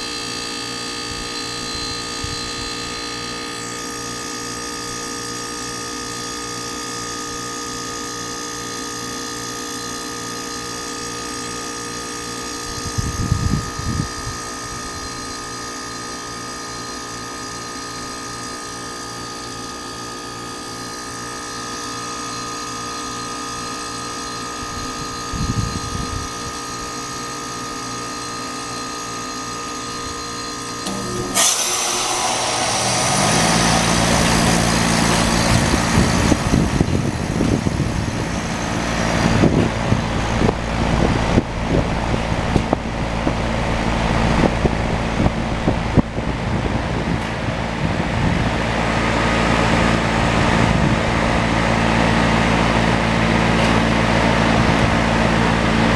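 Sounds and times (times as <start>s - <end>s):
compressor humming: 0.0s - 18.8s, 20.5s - 55.9s
fan spinning up: 0.0s - 55.9s
loud whoosh of refrigerant: 30.8s - 55.9s
rush of air: 30.9s - 48.5s.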